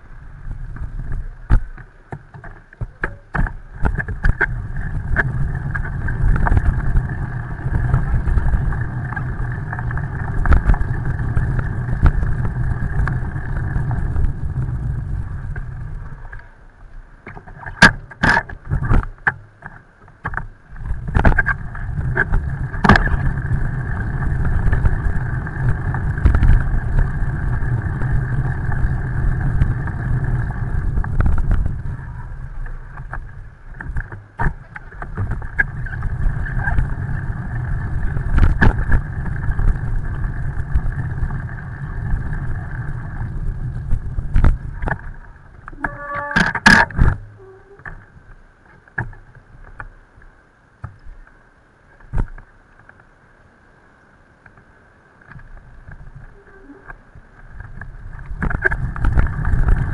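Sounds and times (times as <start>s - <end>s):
road noise on wet bridge: 3.9s - 16.0s, 21.0s - 45.8s.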